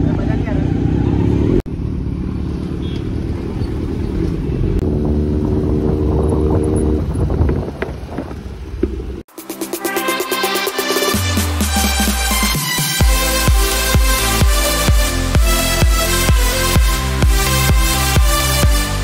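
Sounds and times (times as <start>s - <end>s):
motorcycle engine running: 0.0s - 9.2s
electronic dance music: 9.3s - 19.0s.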